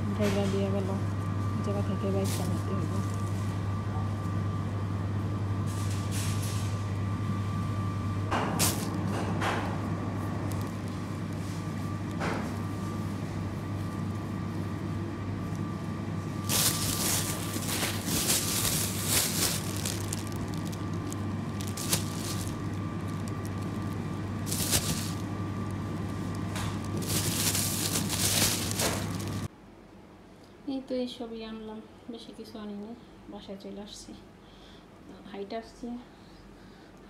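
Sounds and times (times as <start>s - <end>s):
steady background hum: 0.0s - 37.0s
plastic bag crinkling: 1.8s - 3.5s, 8.6s - 9.0s, 10.4s - 11.4s, 16.3s - 29.5s.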